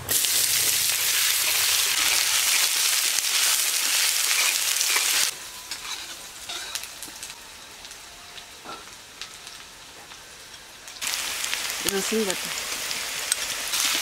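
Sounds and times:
onion sizzling in hot oil: 0.0s - 14.0s
spatula stirring in metal pan: 3.9s - 6.8s.

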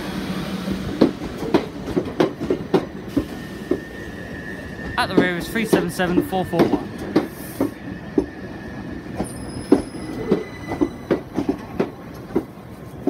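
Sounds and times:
train wheels clunking over joints: 0.5s - 13.0s
high wheel squeal: 7.4s - 11.2s.

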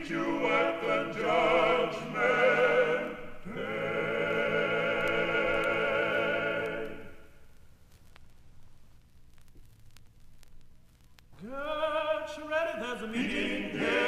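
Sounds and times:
male vocal quartet singing: 0.0s - 7.2s, 11.4s - 14.0s.

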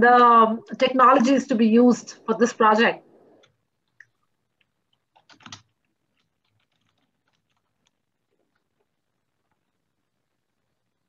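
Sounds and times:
computer keyboard keystrokes: 3.4s - 8.0s.

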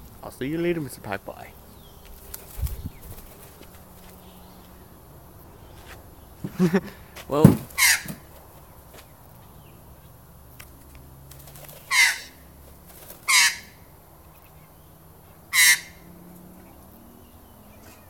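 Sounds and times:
magpie calling: 7.6s - 8.4s, 11.4s - 16.7s.

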